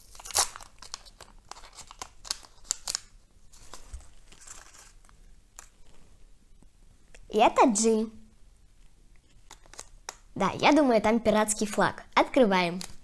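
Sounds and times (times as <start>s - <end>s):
plastic wrapper crinkling: 0.0s - 6.0s, 9.2s - 10.3s, 12.6s - 13.0s.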